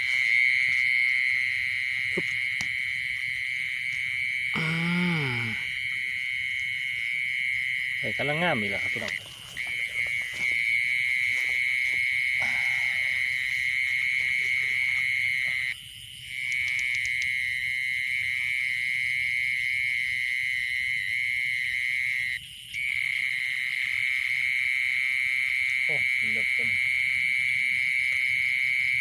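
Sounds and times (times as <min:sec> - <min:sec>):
insect trilling: 0:00.0 - 0:29.0
footsteps through wet grass: 0:09.1 - 0:12.4, 0:13.4 - 0:15.3.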